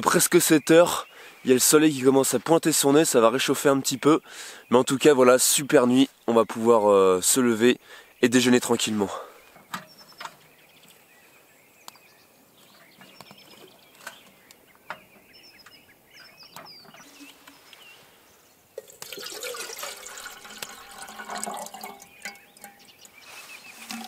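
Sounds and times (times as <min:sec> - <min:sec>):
faint bird chirps: 0:03.7 - 0:18.7, 0:20.5 - 0:24.0
water poured into metal kettle: 0:18.8 - 0:24.0.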